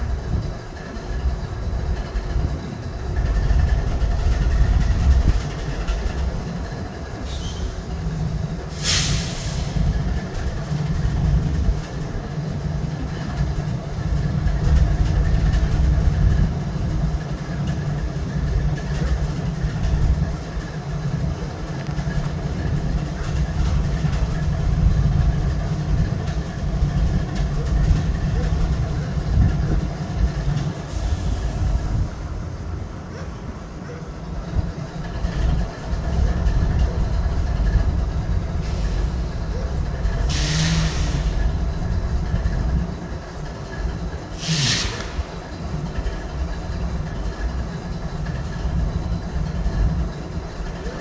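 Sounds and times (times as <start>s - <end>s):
diesel locomotive engine idling: 0.0s - 51.0s
short hiss: 8.7s - 9.8s, 44.4s - 45.3s.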